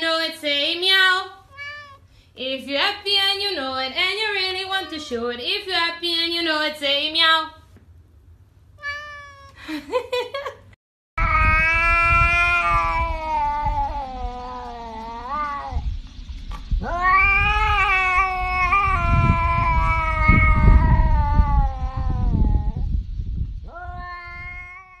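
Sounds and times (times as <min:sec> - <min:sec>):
cat yowling: 0:01.5 - 0:02.0, 0:08.8 - 0:09.6, 0:11.2 - 0:15.8, 0:16.8 - 0:22.9, 0:23.7 - 0:25.0.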